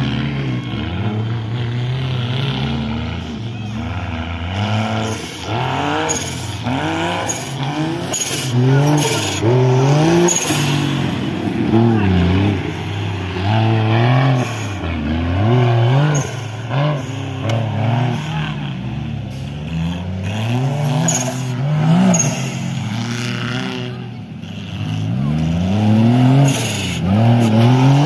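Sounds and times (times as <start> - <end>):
buggy engine revving: 0.0 - 28.0.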